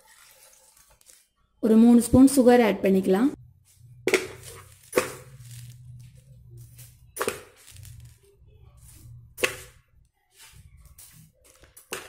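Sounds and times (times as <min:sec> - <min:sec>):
kitchen items knocking: 0:03.9 - 0:05.4, 0:09.1 - 0:09.9, 0:11.2 - 0:12.0.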